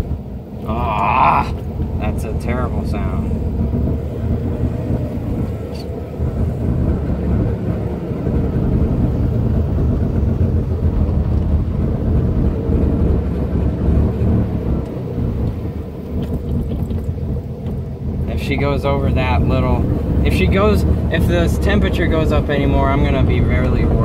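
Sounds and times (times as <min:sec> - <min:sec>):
road rumble: 0:00.0 - 0:24.0
rotary engine: 0:00.0 - 0:24.0.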